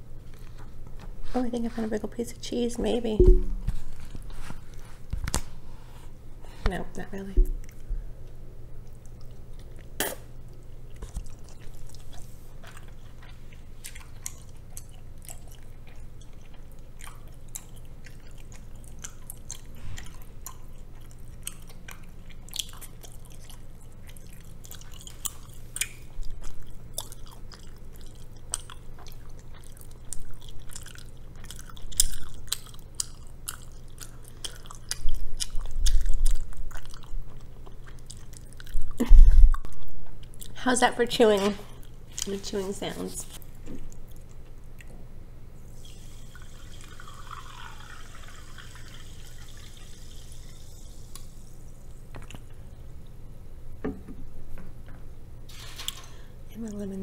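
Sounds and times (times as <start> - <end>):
steady low hum: 0.0 - 57.0
wet chewing clicks and smacks: 7.6 - 40.6, 43.4 - 45.0.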